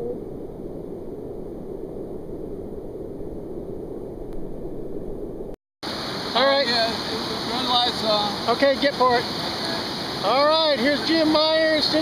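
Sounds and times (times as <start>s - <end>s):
whitewater rapid rushing: 5.9s - 12.0s.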